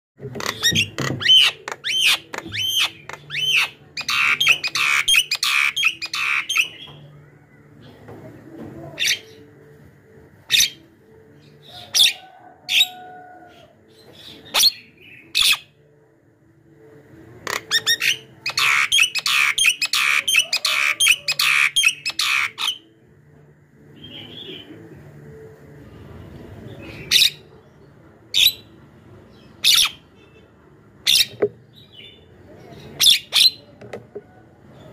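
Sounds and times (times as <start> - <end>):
myna harsh chattering calls: 17.5 - 22.7.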